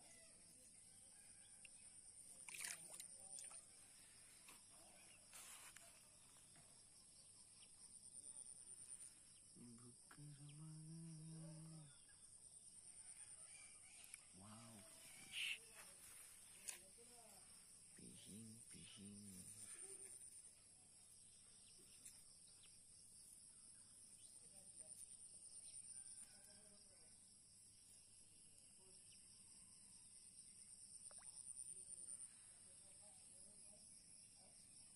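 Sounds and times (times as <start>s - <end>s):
faint voices: 14.2s - 20.2s.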